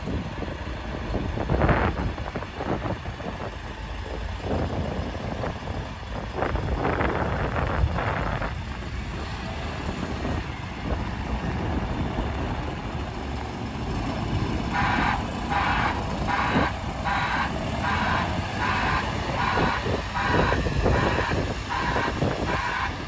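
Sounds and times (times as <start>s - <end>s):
diesel engine rumbling: 0.0s - 23.0s
reversing alarm beeping: 14.7s - 23.0s.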